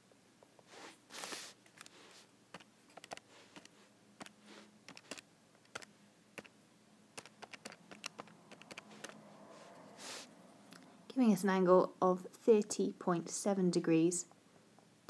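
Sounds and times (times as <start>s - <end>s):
calculator keys clicking: 2.6s - 6.5s, 7.2s - 9.2s.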